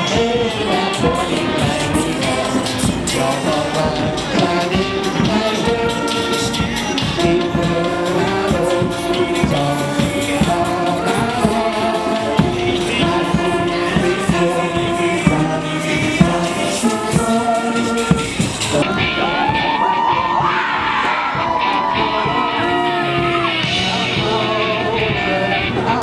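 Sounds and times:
brass band playing: 0.0 - 26.0.

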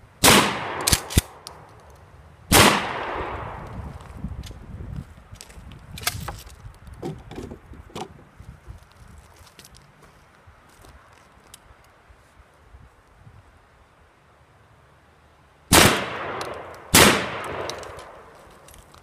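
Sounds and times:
shotgun shot with echo: 0.2 - 1.4, 2.5 - 3.6, 15.7 - 18.2.

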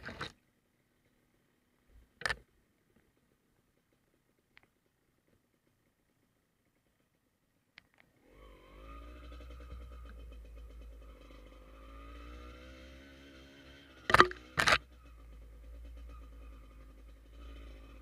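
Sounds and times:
faint clicks: 2.2 - 5.9
motorcycle engine running: 8.2 - 18.0.

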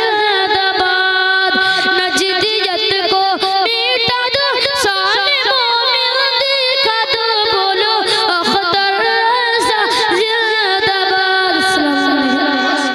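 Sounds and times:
boy singing into a microphone: 0.0 - 12.9.

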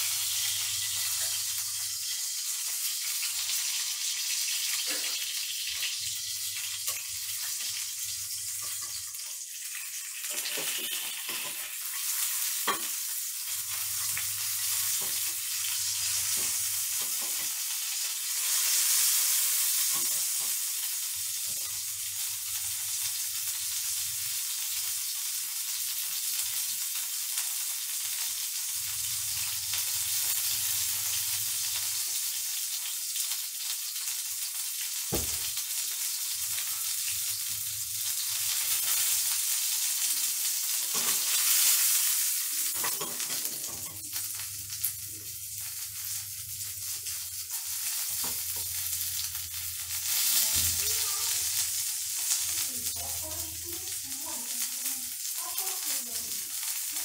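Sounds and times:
chicken sizzling in a pan: 0.0 - 57.0
sharp knock: 35.1 - 35.5.

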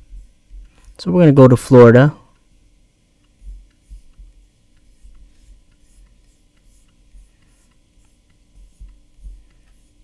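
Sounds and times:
computer mouse clicking: 3.2 - 9.9
soft low thumps: 3.4 - 4.5.

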